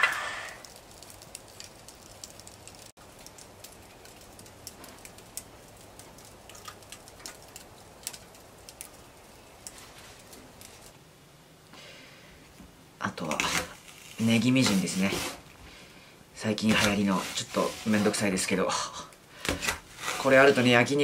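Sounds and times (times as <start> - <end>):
sharp pops of burning wood: 0.0 - 11.0, 18.1 - 20.5
wood fire crackling: 0.0 - 21.0.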